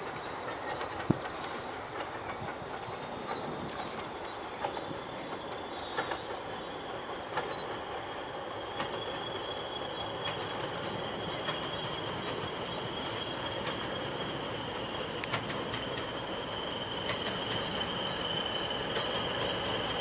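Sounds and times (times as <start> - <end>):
low rumble of train engine: 0.0 - 20.0
faint clicks: 0.8 - 6.3, 14.4 - 16.1.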